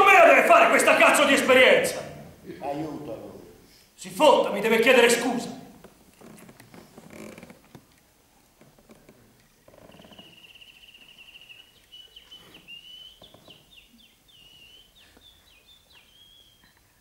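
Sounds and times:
bird trilling and chirping: 9.9 - 16.7.

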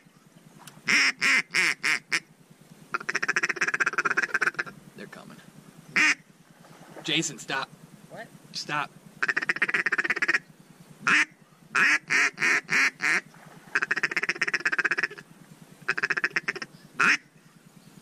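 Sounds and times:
duck call quacks: 0.9 - 2.3, 2.9 - 4.8, 6.0 - 6.2, 9.2 - 10.4, 11.0 - 15.2, 15.9 - 17.3
duck call chuckles: 2.9 - 4.7, 15.9 - 17.2.

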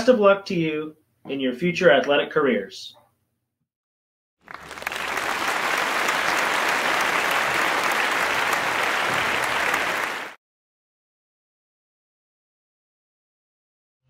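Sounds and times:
crowd applauding: 4.4 - 10.4.

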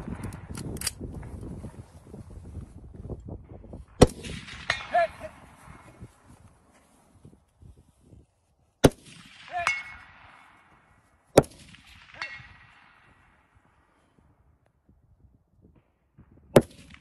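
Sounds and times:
rifle shots: 3.9 - 5.8, 8.8 - 13.5, 16.5 - 17.0
bullet ringing on steel target: 9.6 - 10.1.

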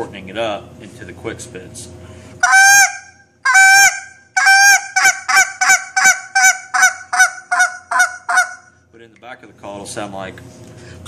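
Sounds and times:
goose call honks: 2.4 - 8.7.

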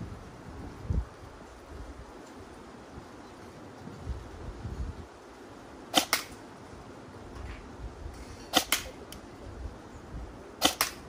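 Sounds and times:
airsoft gun snapping shots: 5.9 - 6.4, 8.5 - 9.2, 10.6 - 11.0.

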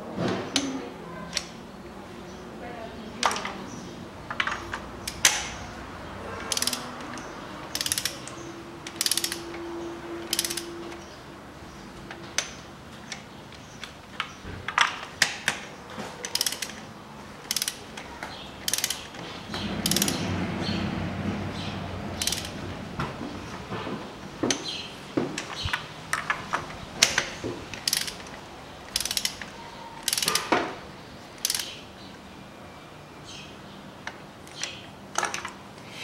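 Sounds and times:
socket ratchet clicking: 6.4 - 9.6, 10.2 - 11.1, 15.2 - 18.0, 18.6 - 19.2, 19.8 - 20.3, 22.2 - 22.6, 25.4 - 30.5, 31.4 - 31.8.

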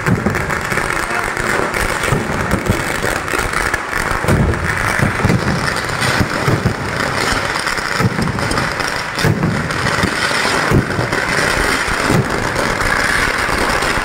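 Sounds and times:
low firework thumps: 0.0 - 3.0, 4.2 - 11.1
firecracker bangs and crackling: 0.0 - 14.0.

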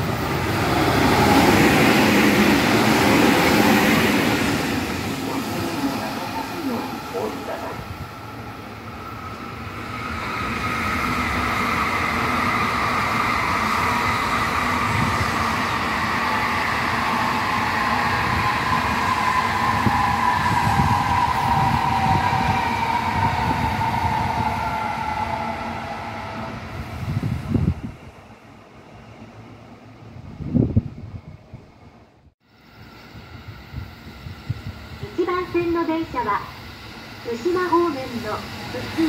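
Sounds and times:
high-speed train passing: 0.0 - 39.0.

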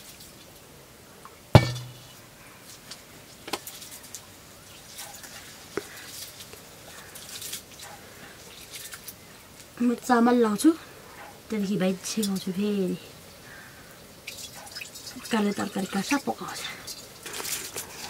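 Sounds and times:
metal pots clanking: 1.6 - 2.2.

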